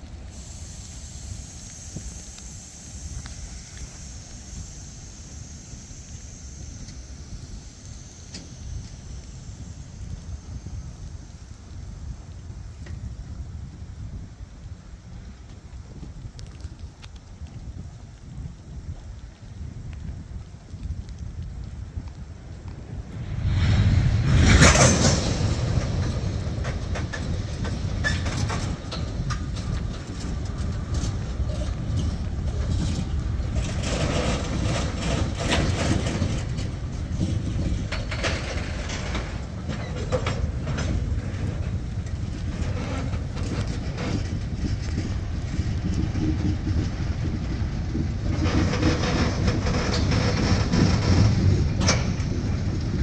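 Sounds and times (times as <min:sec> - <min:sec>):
train clicks and clanks: 0:00.0 - 0:13.3, 0:15.0 - 0:53.0
train wheels rumbling on rails: 0:00.0 - 0:53.0
loud clatter: 0:23.4 - 0:53.0.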